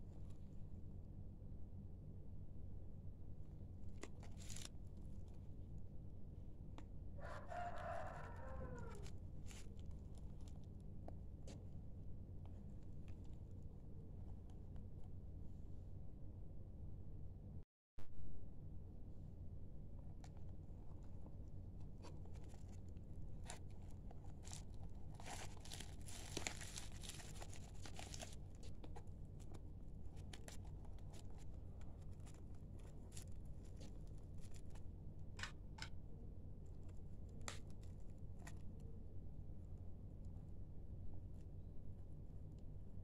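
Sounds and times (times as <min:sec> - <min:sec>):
plastic mailer crinkling: 0:04.0 - 0:04.8, 0:22.0 - 0:34.8.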